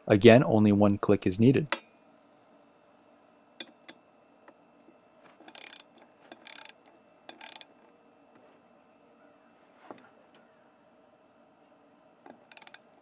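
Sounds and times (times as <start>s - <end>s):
rapid ratchet clicking: 5.4s - 7.8s, 12.3s - 13.0s
torque wrench clicks: 5.5s - 7.7s, 12.3s - 12.8s.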